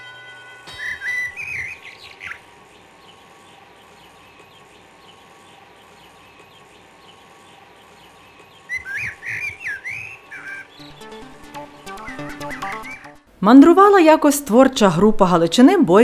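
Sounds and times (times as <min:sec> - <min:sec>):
loud whistled bird calls: 0:00.7 - 0:11.2, 0:11.9 - 0:13.2
small bird chirps: 0:00.7 - 0:11.2.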